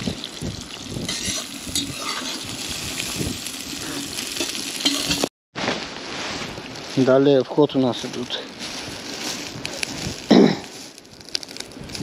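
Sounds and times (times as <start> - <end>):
onions sizzling in oil: 0.0 - 5.3
metal skimmer scraping pot: 1.0 - 2.6.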